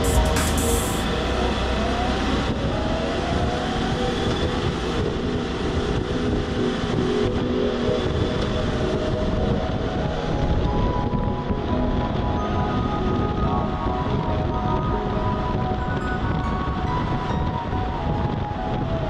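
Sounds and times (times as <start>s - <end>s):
road noise: 0.0s - 19.0s.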